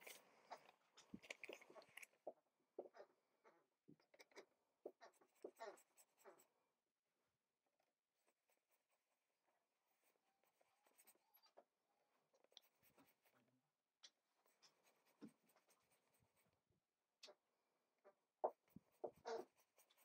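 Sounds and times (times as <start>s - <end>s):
brush scratching on paper: 0.0s - 0.6s, 4.9s - 6.5s, 8.2s - 11.2s, 12.5s - 13.4s, 14.4s - 16.5s, 18.5s - 20.0s.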